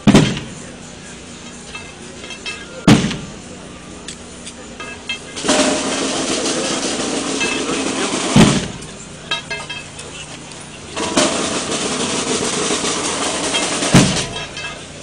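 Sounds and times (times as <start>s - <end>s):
snare drum roll: 5.4s - 9.0s, 11.0s - 14.5s.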